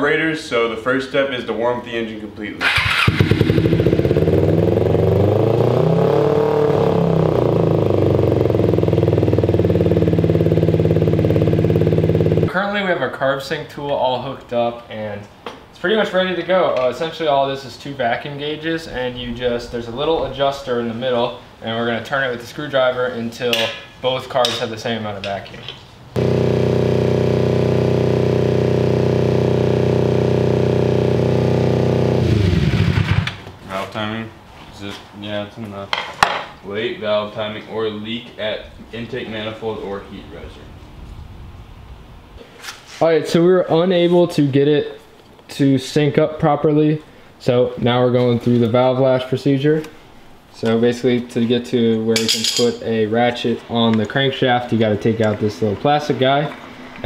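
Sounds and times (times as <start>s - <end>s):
motorcycle engine running: 2.6s - 12.5s, 26.2s - 33.4s.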